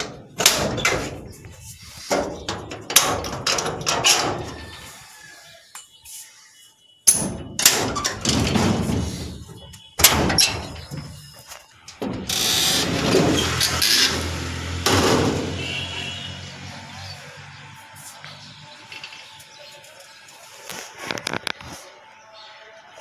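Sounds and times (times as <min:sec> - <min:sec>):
metal bolts and latches clacking: 0:00.0 - 0:01.3, 0:02.1 - 0:04.4, 0:07.1 - 0:09.0.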